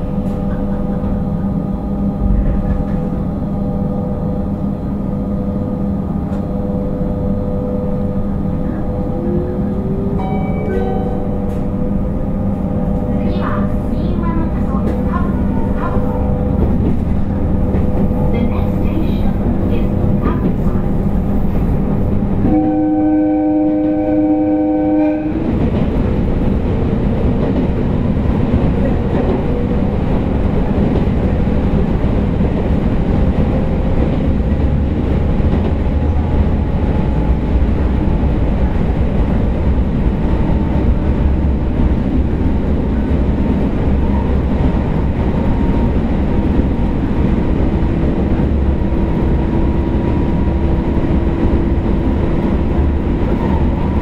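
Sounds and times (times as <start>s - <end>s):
train wheels rumbling: 0.0s - 54.0s
train horn: 22.4s - 25.6s.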